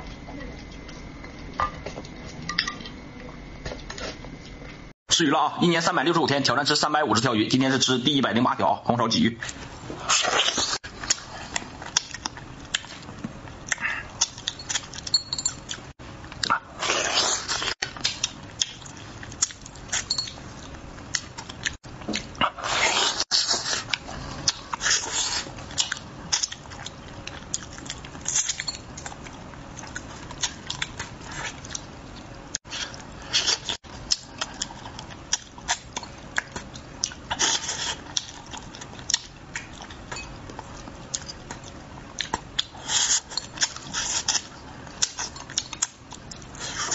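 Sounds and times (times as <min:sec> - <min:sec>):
man chewing and smacking: 0:10.2 - 0:46.9.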